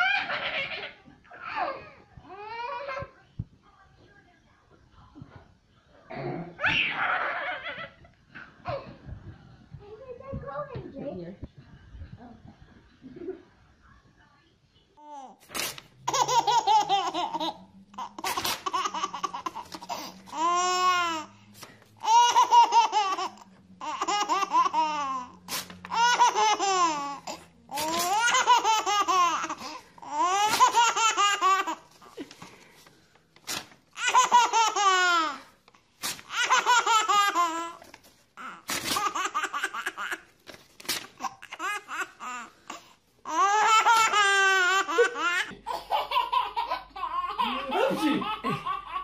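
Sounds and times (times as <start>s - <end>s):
baby laughing: 16.0s - 21.3s, 22.0s - 32.3s, 34.0s - 35.5s, 36.2s - 37.8s, 38.4s - 40.3s, 43.3s - 49.0s.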